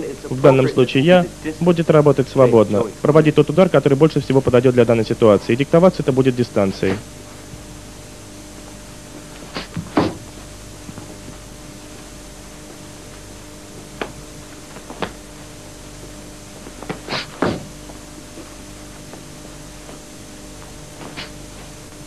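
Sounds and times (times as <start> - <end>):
steady low hum: 0.0 - 22.0
stepping feet: 8.5 - 22.0
dull thuds of blows: 9.4 - 11.0, 16.7 - 17.8.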